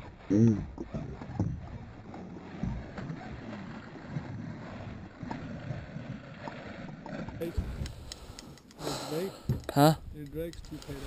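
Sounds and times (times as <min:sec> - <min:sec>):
wind rumble on the microphone: 0:00.9 - 0:08.2
small ticks and knocks: 0:09.4 - 0:11.0.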